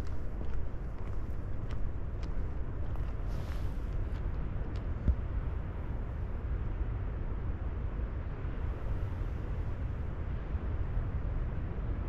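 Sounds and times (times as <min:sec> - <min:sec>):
deep outdoor rumble: 0:00.0 - 0:12.0.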